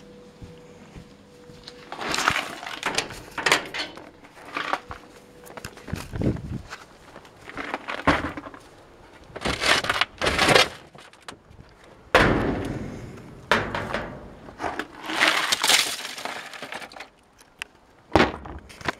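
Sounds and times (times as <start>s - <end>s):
broken parts crashing into plastic bin: 9.4s - 11.3s, 13.5s - 17.1s.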